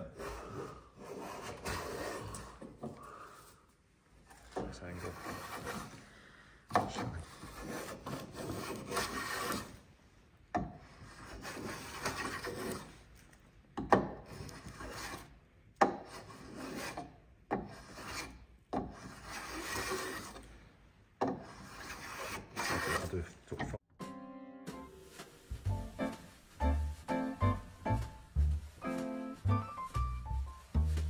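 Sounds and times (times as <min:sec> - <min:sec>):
hand plane shaving wood: 0:00.0 - 0:02.7, 0:04.6 - 0:06.0, 0:06.7 - 0:09.8, 0:10.8 - 0:13.0, 0:14.2 - 0:20.5, 0:21.2 - 0:23.3.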